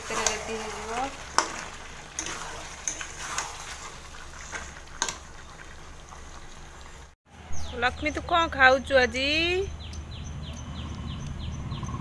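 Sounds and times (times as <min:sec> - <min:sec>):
metal spatula scraping pan: 0:00.0 - 0:05.1
low sizzle: 0:00.0 - 0:10.6.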